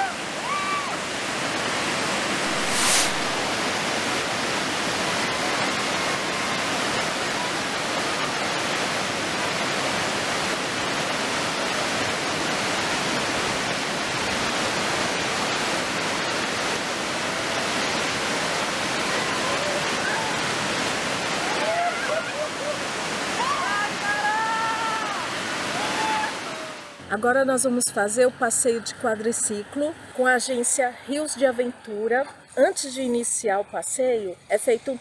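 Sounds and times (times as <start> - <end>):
river rapids rushing over rocks: 0.0 - 27.1.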